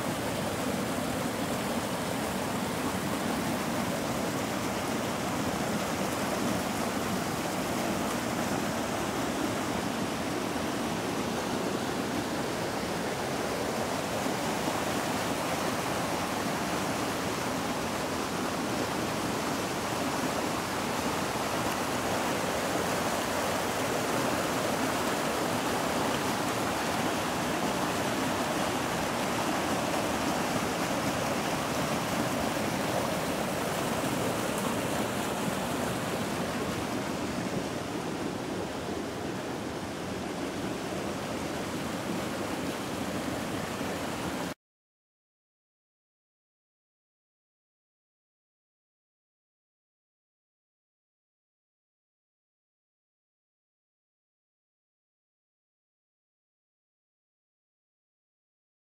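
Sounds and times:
water rushing down rocky cascade: 0:00.0 - 0:44.6.

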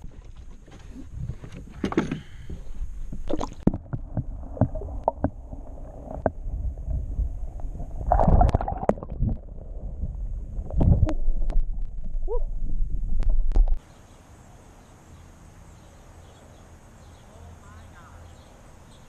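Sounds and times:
underwater splashing and gurgling: 0:02.9 - 0:13.8.

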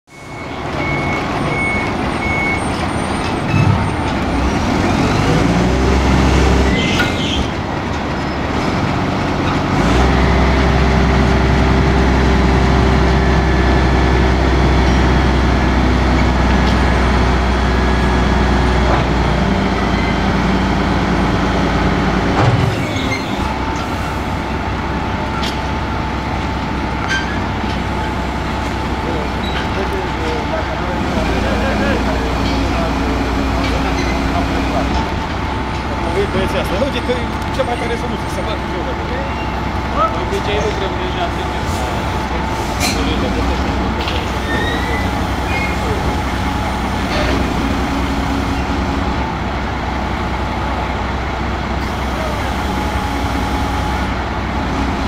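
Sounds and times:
heavy diesel engines: 0:00.0 - 0:55.0
reversing beeps: 0:00.1 - 0:03.7.

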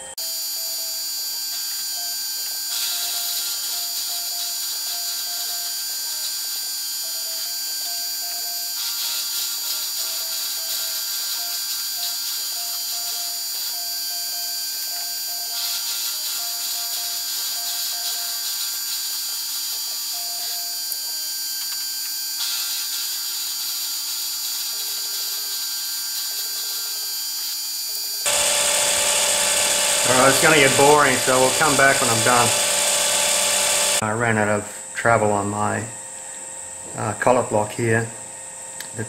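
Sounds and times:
milling machine cutting steel: 0:28.3 - 0:34.0.

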